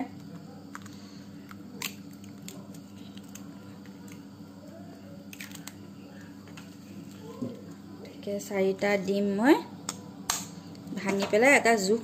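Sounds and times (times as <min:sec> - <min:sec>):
steady low hum: 0:00.0 - 0:12.0
eggshell cracking: 0:05.3 - 0:05.8.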